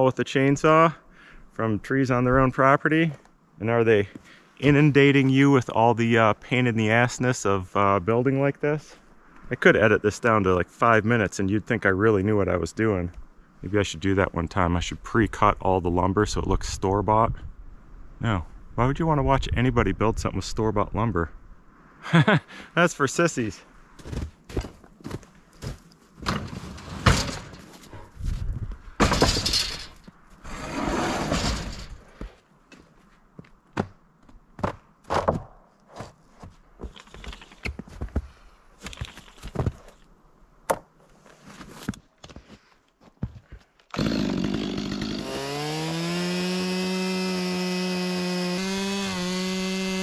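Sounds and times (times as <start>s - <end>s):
scraping: 25.6s - 32.4s
chainsaw starting and running: 44.0s - 50.0s.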